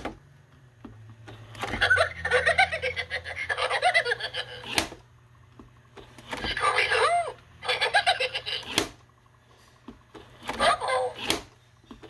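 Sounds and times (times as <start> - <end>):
cartoon voice laughing and talking: 1.8 - 4.7, 6.4 - 8.8, 10.5 - 11.3.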